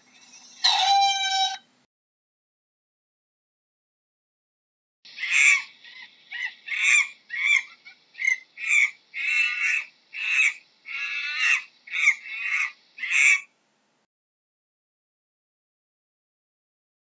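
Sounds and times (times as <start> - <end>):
monkey shrill calls: 0.2 - 1.7, 5.1 - 13.5.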